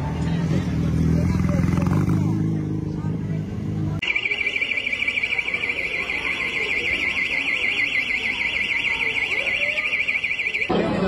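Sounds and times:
warbling electronic alarm: 4.0 - 10.8.

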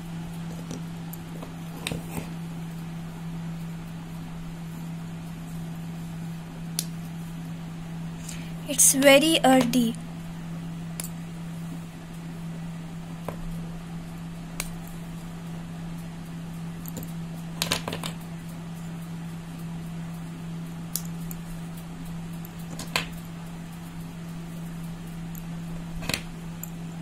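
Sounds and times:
dry clay snapping: 14.6 - 14.8.

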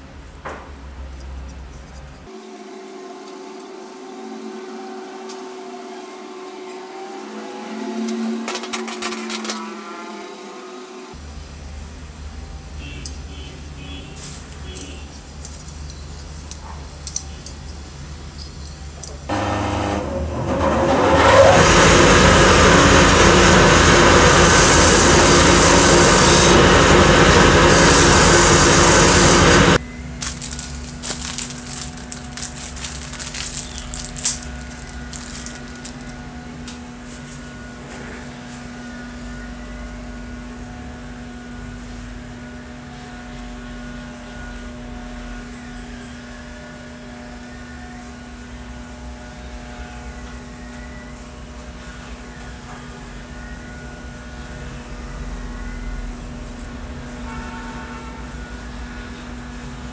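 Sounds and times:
loud power tool running: 19.3 - 36.4.

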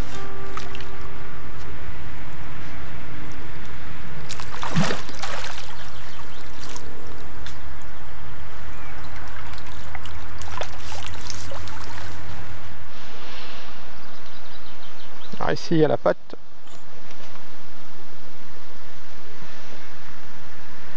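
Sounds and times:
net splashing in water: 0.5 - 1.0, 4.2 - 6.9, 9.2 - 12.3.

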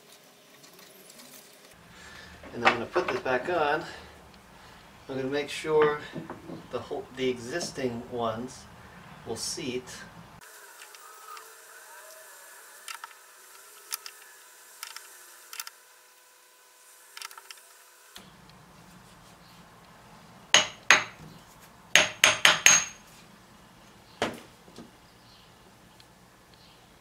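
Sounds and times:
hammer striking metal: 20.6 - 21.2, 22.0 - 23.0.

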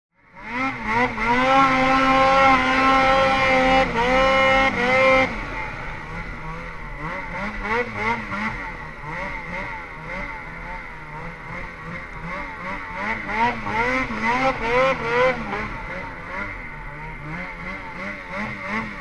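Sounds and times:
snowmobile engine revving: 0.2 - 19.0.

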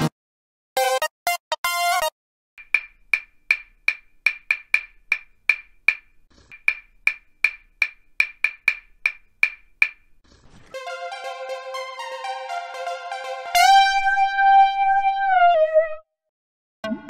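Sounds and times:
wood-block clicks: 2.6 - 10.2.

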